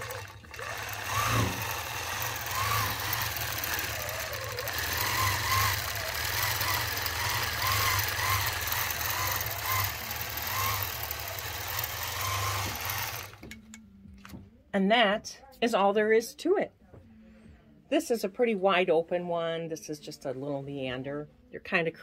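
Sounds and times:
quilting machine humming: 0.0s - 13.7s.

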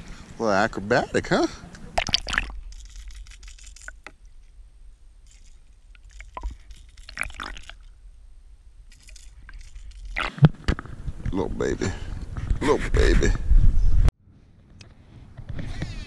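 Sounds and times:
water sloshing: 1.8s - 11.0s
sharp water splashes: 1.9s - 4.6s, 5.2s - 8.2s, 8.8s - 10.6s.

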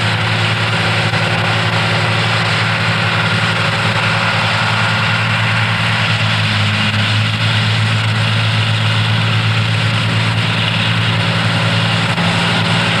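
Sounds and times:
tractor engines droning: 0.0s - 13.0s.

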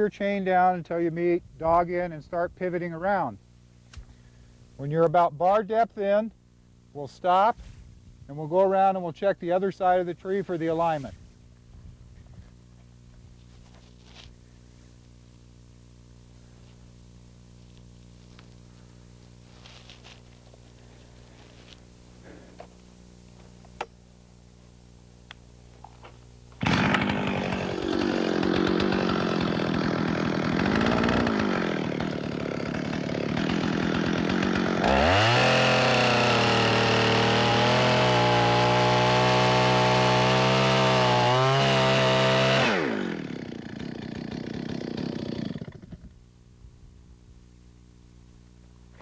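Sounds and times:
chainsaw cutting wood: 26.5s - 46.2s.

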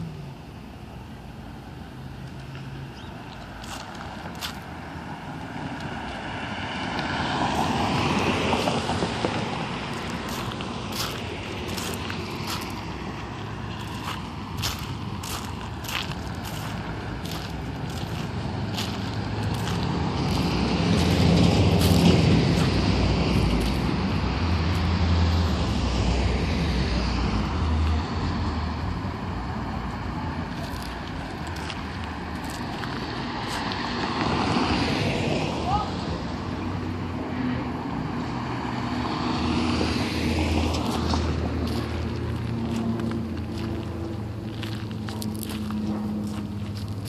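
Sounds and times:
street traffic noise: 0.0s - 47.0s
vehicle passing on road: 0.0s - 47.0s.

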